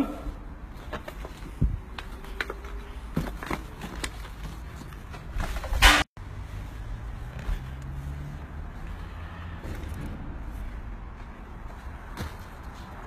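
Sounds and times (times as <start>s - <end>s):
footsteps on rubble: 9.6s - 13.0s.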